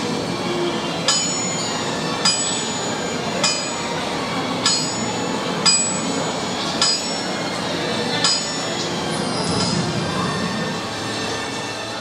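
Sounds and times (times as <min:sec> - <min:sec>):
steady background noise: 0:00.0 - 0:12.0
metal bell-like strikes: 0:01.1 - 0:03.9, 0:04.6 - 0:06.2, 0:06.8 - 0:07.3, 0:08.2 - 0:08.7.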